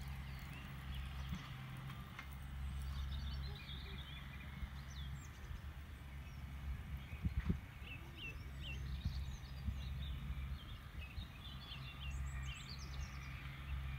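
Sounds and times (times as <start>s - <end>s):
horse hoofbeats on sand: 0.0s - 2.1s
birds chirping: 0.0s - 13.9s.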